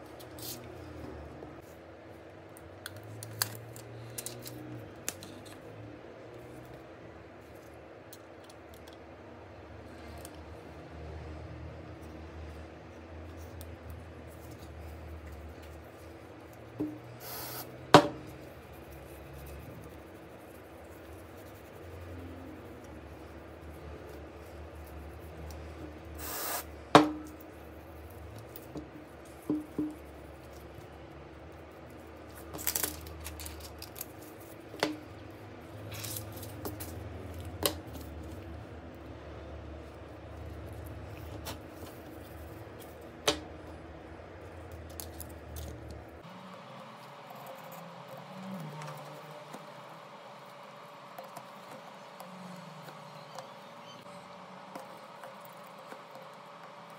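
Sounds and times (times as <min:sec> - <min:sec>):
short hiss: 0:17.2 - 0:17.7, 0:26.2 - 0:26.7.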